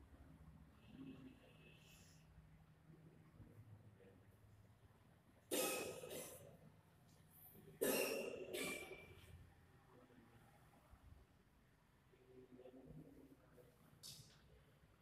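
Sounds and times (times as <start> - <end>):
person coughing: 5.5 - 6.5, 7.8 - 9.0.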